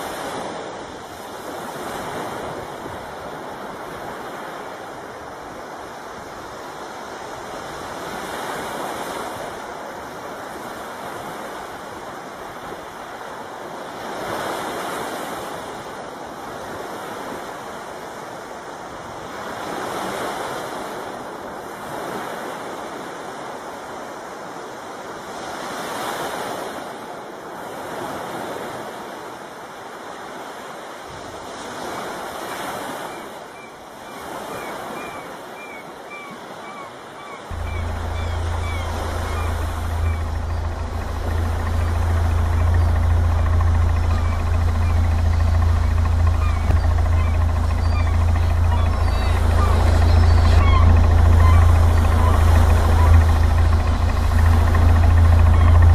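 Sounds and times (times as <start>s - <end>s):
sea water rushing past hull: 37.2s - 55.9s.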